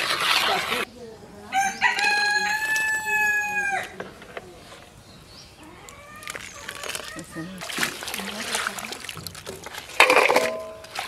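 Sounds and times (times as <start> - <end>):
rooster crowing: 1.5 - 3.9.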